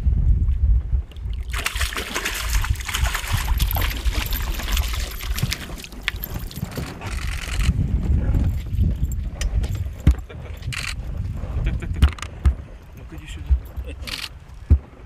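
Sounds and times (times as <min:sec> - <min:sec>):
wind rumble on microphone: 0:00.0 - 0:15.0
fish splashing at water surface: 0:01.3 - 0:06.6.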